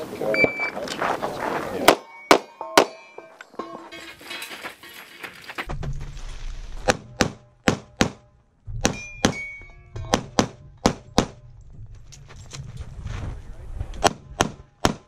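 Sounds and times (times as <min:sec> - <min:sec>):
pistol shots in pairs: 0:14.0 - 0:15.0.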